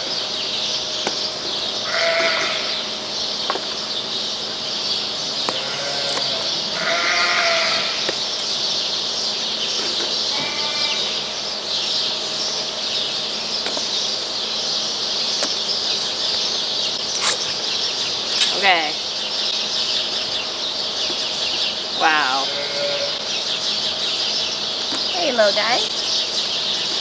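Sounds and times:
lambs bleating: 1.8s - 2.8s, 5.5s - 8.1s, 10.3s - 11.3s, 22.2s - 23.3s.

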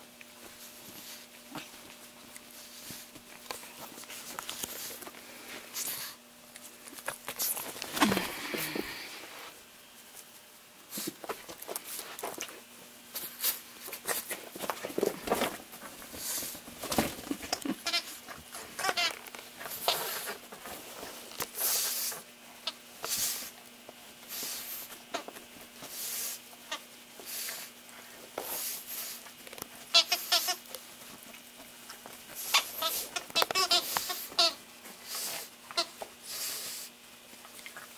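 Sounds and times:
squeaky toy squeaking: 29.9s - 30.6s, 32.5s - 33.8s.

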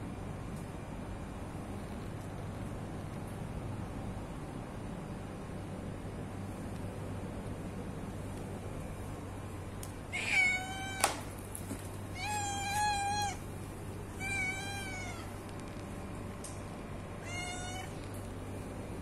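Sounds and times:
low steady hum: 0.0s - 19.0s
cat meowing: 10.1s - 11.2s, 12.1s - 13.4s, 14.2s - 15.3s, 17.2s - 18.0s.

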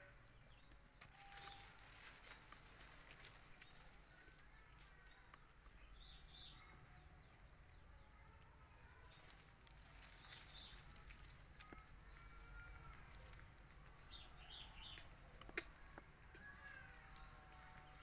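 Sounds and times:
rustling and ticking in grass: 0.6s - 6.7s, 8.8s - 18.0s.

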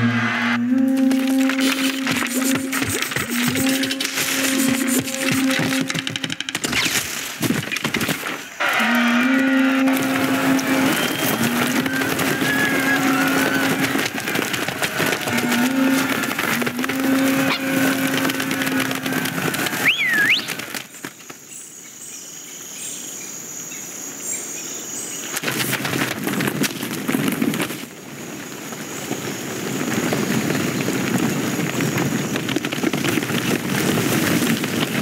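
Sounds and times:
low two-note horn call: 0.0s - 6.3s, 8.6s - 14.1s, 15.1s - 19.2s
swooping whistle: 8.8s - 14.1s, 19.7s - 20.6s
small scurrying feet clatter: 9.9s - 21.5s.

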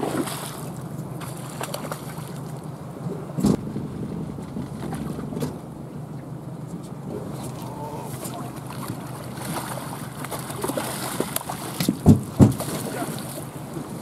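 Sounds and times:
fish thrashing and splashing: 0.0s - 2.6s, 7.7s - 13.4s
river water: 0.0s - 14.0s
wind: 0.0s - 14.0s
heavy thumps: 3.4s - 5.8s.

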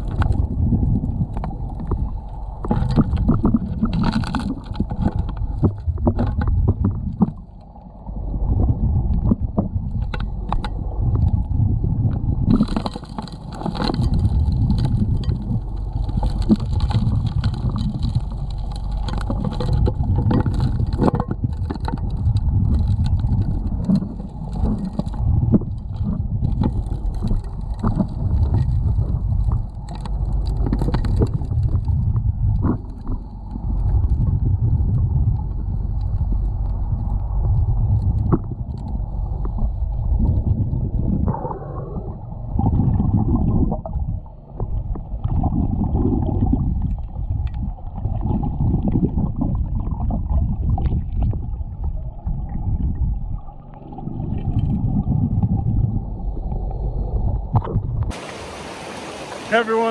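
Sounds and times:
muffled underwater rumble: 0.0s - 58.6s
stones and gravel rattling: 12.5s - 29.1s.

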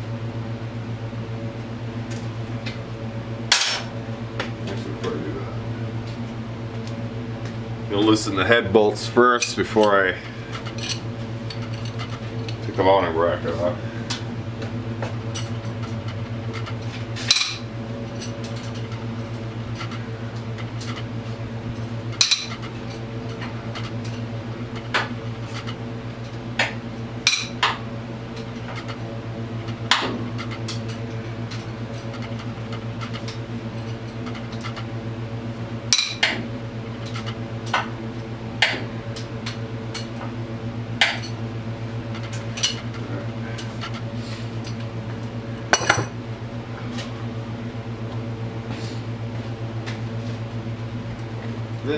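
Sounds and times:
steady low hum: 0.0s - 51.9s.

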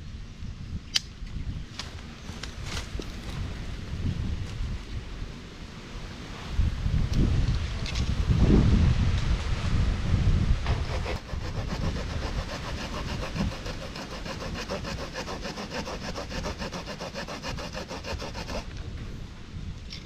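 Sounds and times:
saw cutting wooden stick: 10.7s - 18.7s.

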